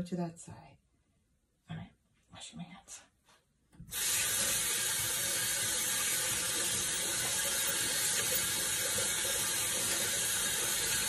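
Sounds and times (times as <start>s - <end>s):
tap water running into sink: 3.8s - 11.0s
hands washing under water: 3.9s - 11.0s.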